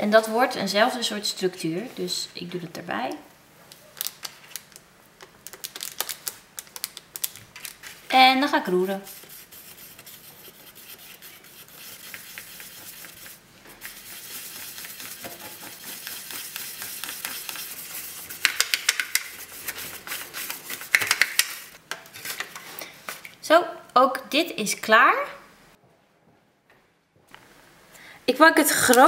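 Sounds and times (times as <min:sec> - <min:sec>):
stick scraping sticky dough: 0:08.6 - 0:21.7.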